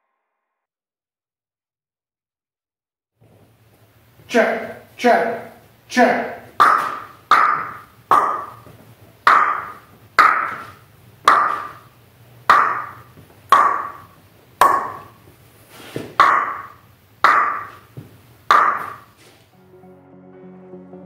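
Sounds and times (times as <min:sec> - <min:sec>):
hand claps echoing in garage: 0:06.4 - 0:15.3, 0:16.0 - 0:19.3.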